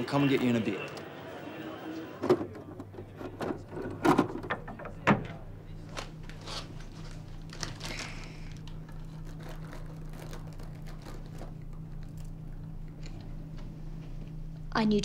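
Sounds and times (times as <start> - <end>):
steady low hum: 0.0 - 15.0
plastic packet crinkling: 6.4 - 12.4.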